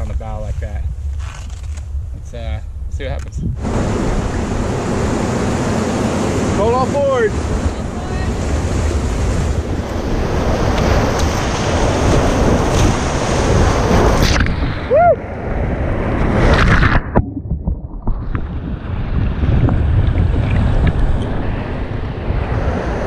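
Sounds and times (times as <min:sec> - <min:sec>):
whitewater crashing and splashing: 0:03.6 - 0:23.0
person yelling: 0:07.7 - 0:08.4, 0:14.9 - 0:15.2.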